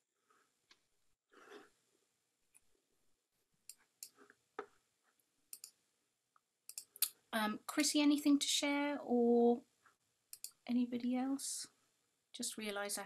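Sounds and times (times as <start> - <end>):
soft clicks: 5.5 - 5.8, 6.4 - 7.2, 10.3 - 10.6.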